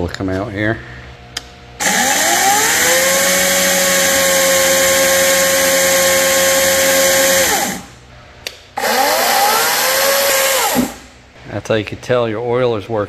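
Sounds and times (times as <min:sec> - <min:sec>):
small click: 0:01.3 - 0:01.5
cordless chainsaw whine: 0:01.8 - 0:07.8, 0:08.8 - 0:11.0.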